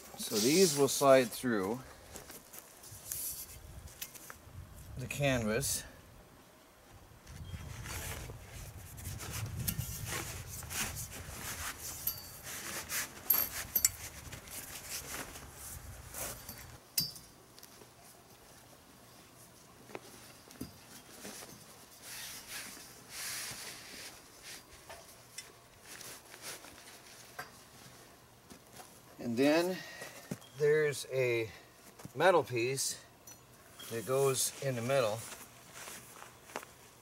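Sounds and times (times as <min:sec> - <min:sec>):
canvas cover rustling: 0:07.6 - 0:16.8, 0:19.4 - 0:29.2, 0:33.8 - 0:37.0
metal tubes clinking and knocking: 0:12.0 - 0:12.5.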